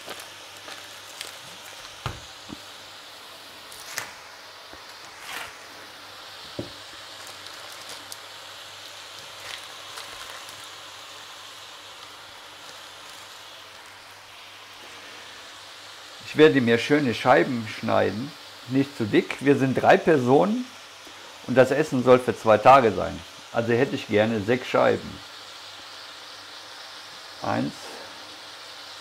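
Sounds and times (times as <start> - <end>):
plastic wrapping crinkling: 0.0 - 2.7, 3.7 - 4.2, 4.8 - 5.8, 6.4 - 14.2
cabbage sizzling in oil: 0.0 - 29.0.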